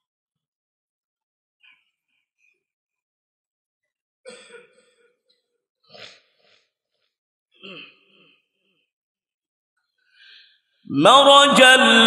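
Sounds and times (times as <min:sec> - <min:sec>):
man clearing throat and coughing: 0:04.2 - 0:06.3, 0:07.6 - 0:08.4.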